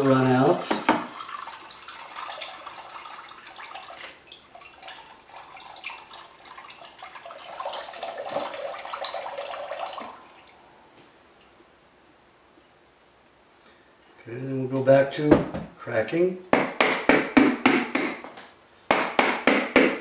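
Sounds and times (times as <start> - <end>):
liquid pouring into a bowl: 0.0 - 10.6.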